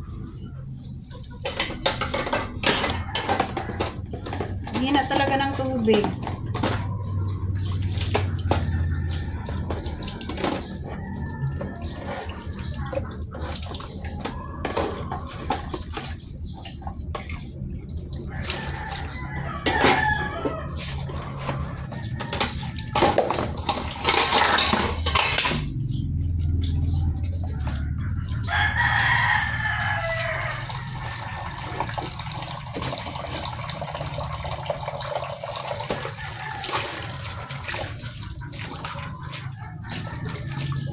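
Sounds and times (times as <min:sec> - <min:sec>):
dishes clattering in a basin: 0:01.2 - 0:17.5, 0:18.4 - 0:25.9, 0:30.8 - 0:40.9
rooster crowing: 0:18.3 - 0:23.2, 0:27.6 - 0:32.2, 0:35.8 - 0:38.0.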